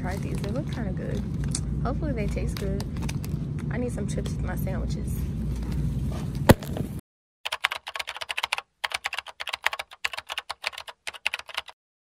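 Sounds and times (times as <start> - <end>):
store background noise: 0.0 - 7.0
computer keyboard typing: 7.5 - 11.8.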